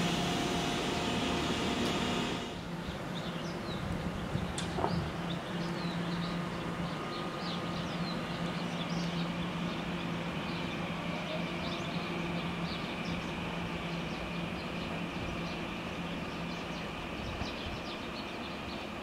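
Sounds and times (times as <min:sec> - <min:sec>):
high whine: 0:00.0 - 0:02.7
electric train humming: 0:00.0 - 0:04.2, 0:05.1 - 0:19.0
small birds chirping: 0:02.7 - 0:19.0.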